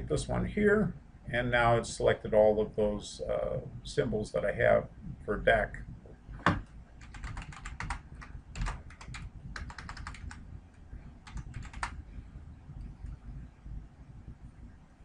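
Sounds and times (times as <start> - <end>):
computer keyboard typing: 7.0 - 10.4, 11.2 - 12.0.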